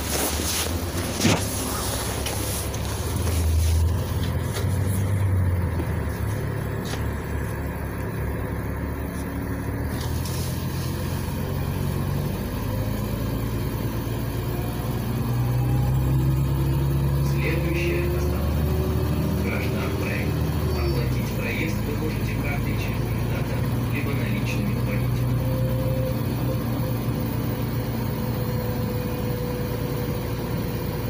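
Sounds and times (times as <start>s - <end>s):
bus engine hum: 0.0s - 31.0s
tyre and road noise: 0.0s - 31.0s.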